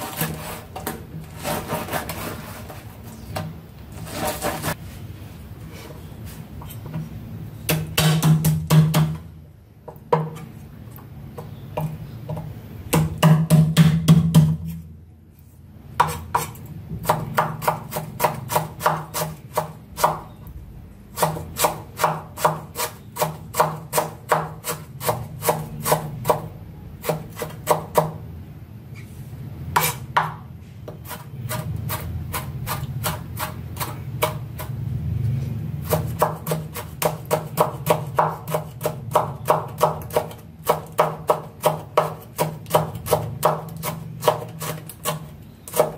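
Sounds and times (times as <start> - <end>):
knife chopping on wooden board: 16.0 - 20.2, 21.2 - 26.4, 35.8 - 45.9.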